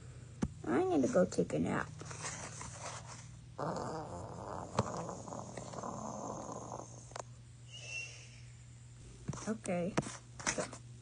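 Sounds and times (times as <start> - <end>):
low steady hum: 0.0 - 11.0
person pretend snoring: 3.6 - 7.2.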